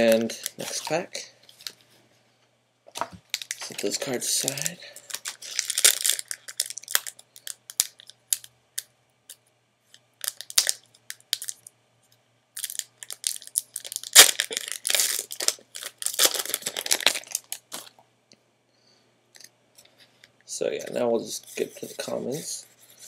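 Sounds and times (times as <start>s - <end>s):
foil wrapper crinkling and tearing: 3.3s - 8.5s, 10.2s - 11.7s, 12.6s - 17.9s.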